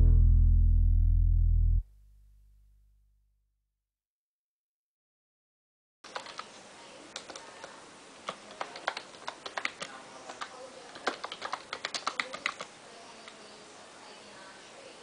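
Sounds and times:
faint sharp clicks and taps: 0:07.2 - 0:13.4.

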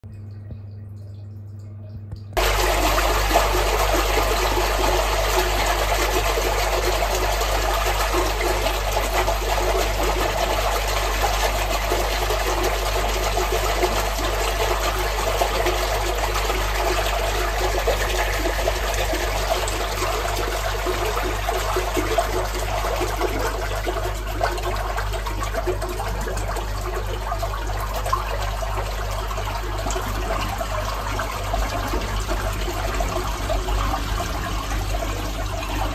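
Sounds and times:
sewage water rushing: 0:02.4 - 0:24.4.

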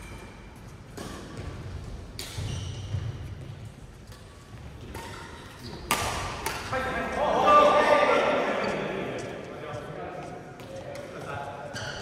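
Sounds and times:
low hum of sports hall: 0:00.0 - 0:12.0
rackets striking shuttlecock: 0:04.1 - 0:06.9.

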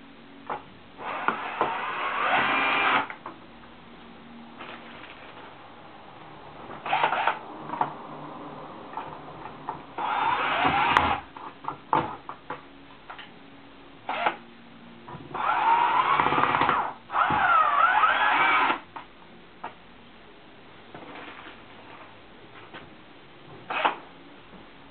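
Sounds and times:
cordless drill running: 0:01.0 - 0:03.1, 0:10.0 - 0:11.2, 0:15.4 - 0:18.8.

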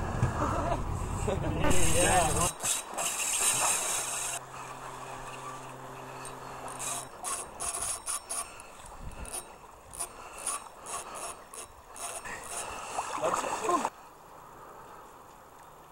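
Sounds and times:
fishing reel whirring: 0:01.0 - 0:13.8
reel and rod clicking: 0:01.7 - 0:13.9.

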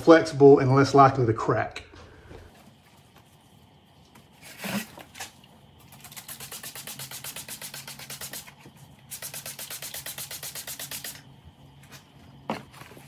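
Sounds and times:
trigger spray bottle spritzing: 0:05.8 - 0:11.3.

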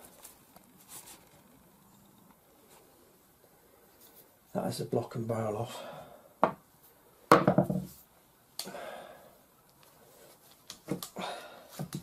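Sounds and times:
loud knock: 0:07.3 - 0:07.9.

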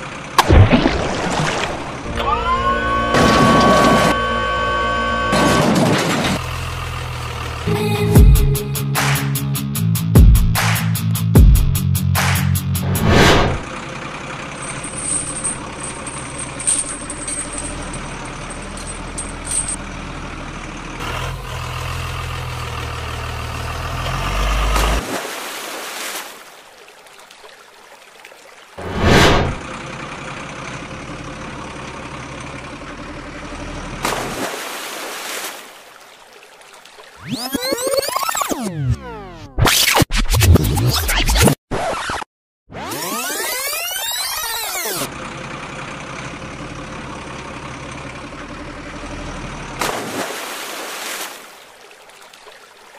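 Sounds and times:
truck engine running: 0:00.0 - 0:00.7, 0:01.6 - 0:25.0, 0:28.8 - 0:34.4, 0:44.4 - 0:50.0
music: 0:02.1 - 0:05.1, 0:07.6 - 0:13.0
loud sudden noise: 0:12.8 - 0:13.7, 0:28.8 - 0:29.6.

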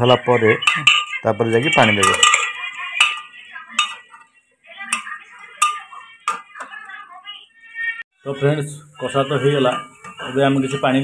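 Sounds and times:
metal spoon scraping a pot: 0:00.1 - 0:04.3, 0:04.9 - 0:06.7, 0:09.6 - 0:11.0
spoon clinking on pot rim: 0:00.6 - 0:04.2, 0:04.9 - 0:06.6.

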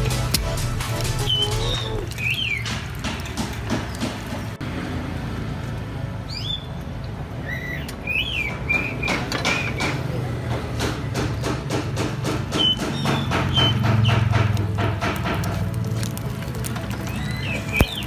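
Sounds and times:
background music with steady beat: 0:00.0 - 0:02.1.

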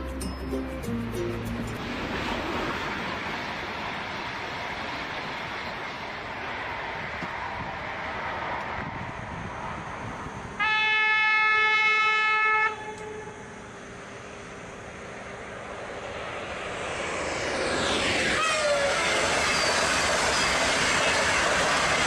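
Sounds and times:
high-speed train rushing: 0:00.0 - 0:22.0
train horn blast: 0:10.6 - 0:13.6, 0:18.4 - 0:18.9.

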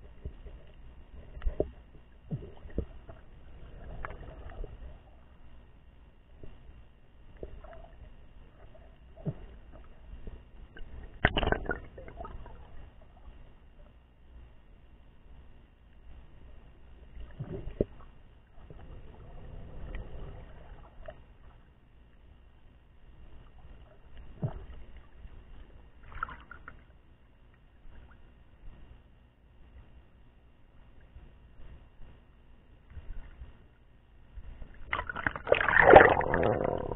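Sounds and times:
muffled underwater rumbling: 0:00.0 - 0:36.9
muffled water sloshing: 0:00.0 - 0:36.9
water splash: 0:34.9 - 0:36.9.

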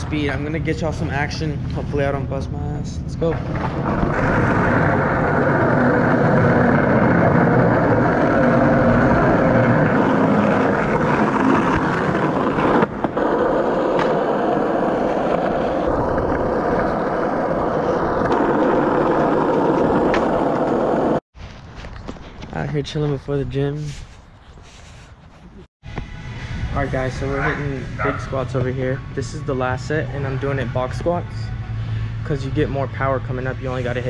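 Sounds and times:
skateboard wheels rolling on concrete: 0:03.2 - 0:23.1.

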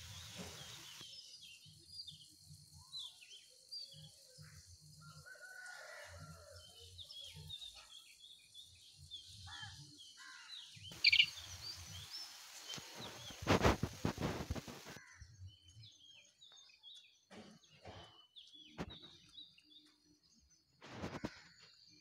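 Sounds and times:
small birds chirping: 0:00.0 - 0:22.0
faint rooster crowing: 0:05.0 - 0:07.0
sharp bird call: 0:11.0 - 0:11.4.

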